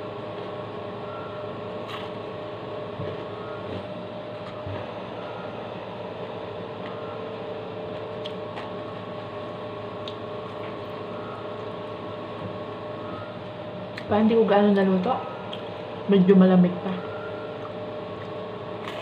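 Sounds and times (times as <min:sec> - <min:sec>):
electrical appliance hum: 0:00.0 - 0:19.0.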